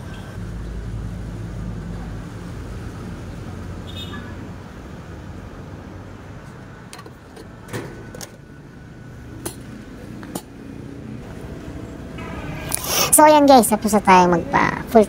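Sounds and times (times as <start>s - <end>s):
steady low rumble: 11.2s - 15.0s.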